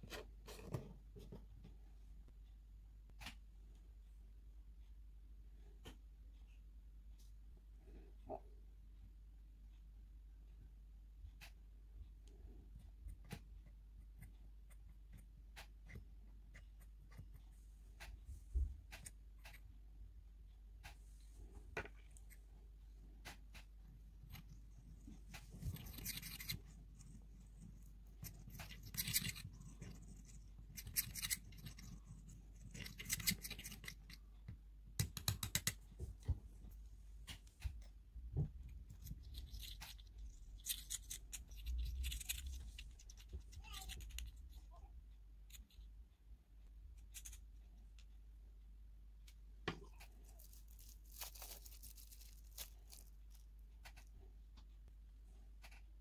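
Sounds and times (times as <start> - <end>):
faint low hum: 0.0 - 56.0
fingers crumbling flakes: 49.8 - 54.0
plastic bag crinkling: 50.2 - 53.5.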